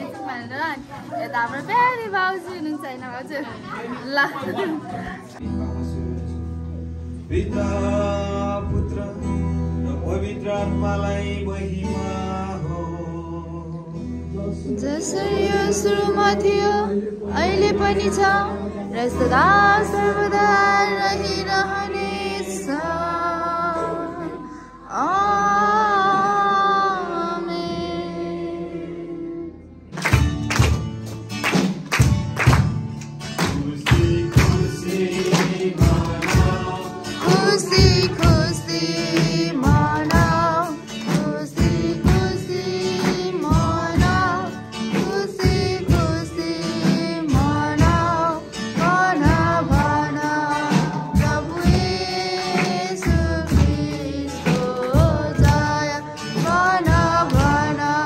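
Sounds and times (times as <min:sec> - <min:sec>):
song with steady beat: 0:29.8 - 0:58.0.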